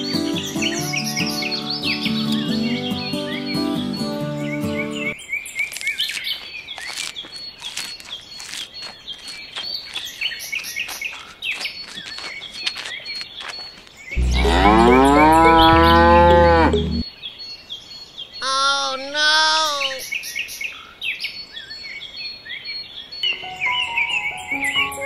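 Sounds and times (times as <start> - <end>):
small birds chirping: 0.0 - 25.0
cow mooing: 14.2 - 17.0.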